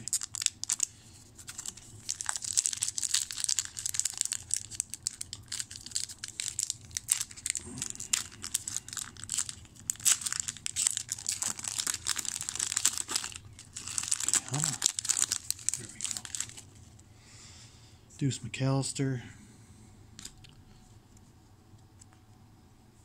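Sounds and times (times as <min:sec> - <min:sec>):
card pack wrapper crinkling and tearing: 0:00.0 - 0:16.9.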